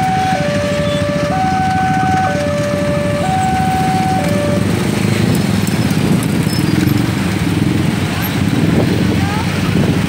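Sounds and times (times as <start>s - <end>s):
level crossing alarm two tones: 0.0s - 4.6s
motorcycle engines rumbling: 0.0s - 10.0s.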